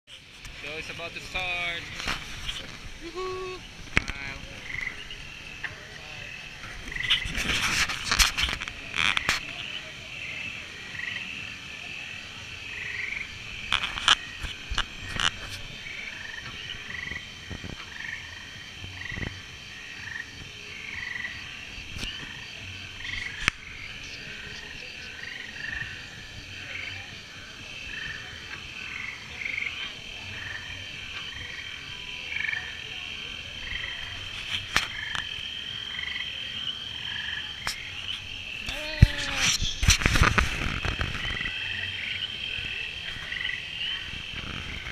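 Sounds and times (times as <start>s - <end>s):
frogs croaking: 0.1s - 44.9s.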